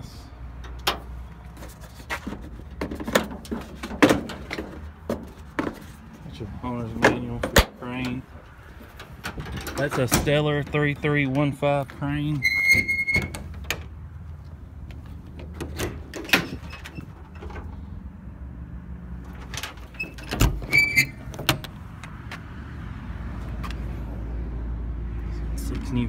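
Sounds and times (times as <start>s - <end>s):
metal latch clicks and knocks: 8.9s - 10.4s, 19.3s - 22.1s
short high squeak: 12.4s - 13.4s, 20.0s - 21.2s.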